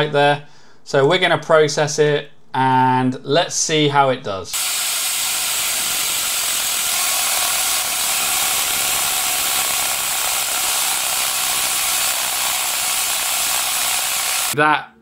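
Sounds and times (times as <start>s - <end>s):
laser engraver hiss and whir: 4.6s - 14.6s.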